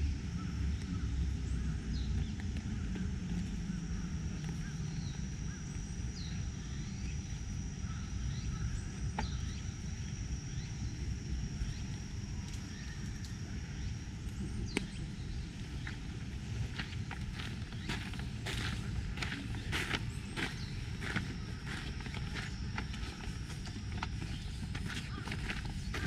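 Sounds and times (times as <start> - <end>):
faint bird chirps: 16.7 - 26.0.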